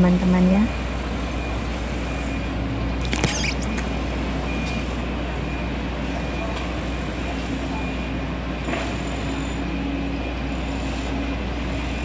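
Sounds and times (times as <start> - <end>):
city traffic: 0.0 - 12.0
sharp high-pitched clatter: 3.0 - 3.9.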